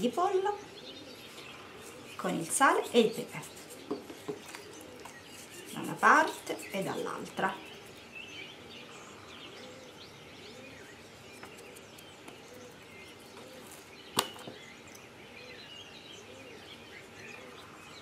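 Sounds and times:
small birds chirping: 0.0s - 18.0s
low cooing: 9.0s - 10.8s.

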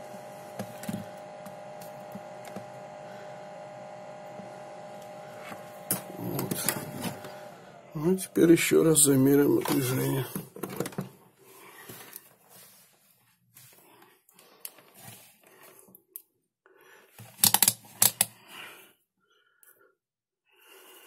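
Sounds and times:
test probes clicking and rustling: 17.2s - 18.4s
sharp clicks of probe tips: 17.3s - 18.3s.

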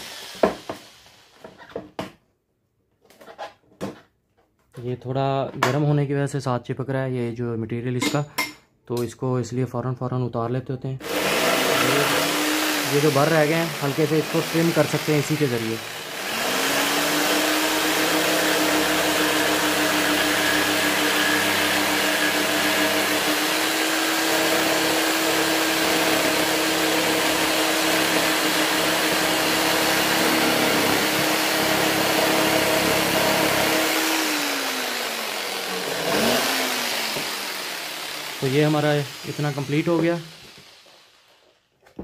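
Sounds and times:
jigsaw cutting acrylic: 11.0s - 41.5s.

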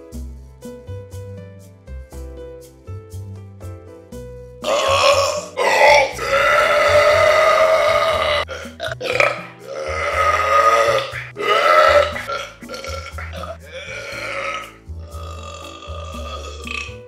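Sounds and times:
music with stepping bass line: 0.0s - 17.0s
long human burps: 4.6s - 17.0s.

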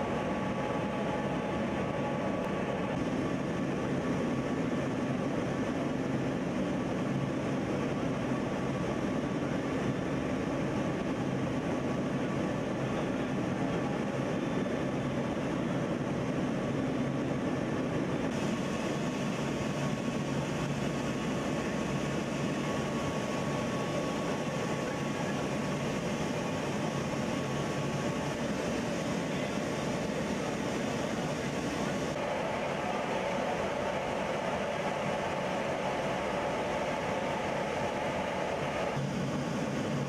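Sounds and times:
aircraft engine drone: 0.0s - 40.0s
faint steady whine: 0.0s - 40.0s.

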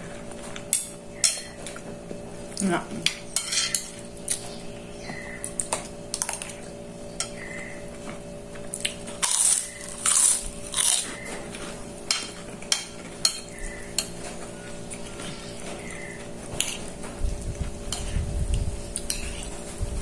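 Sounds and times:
cracker crunching: 8.0s - 11.8s.

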